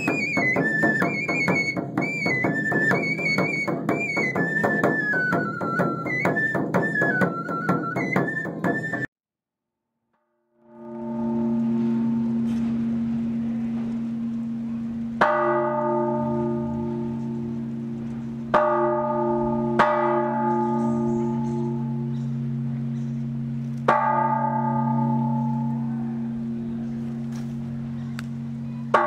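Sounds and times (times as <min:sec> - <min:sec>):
church bells ringing: 0:10.7 - 0:29.0.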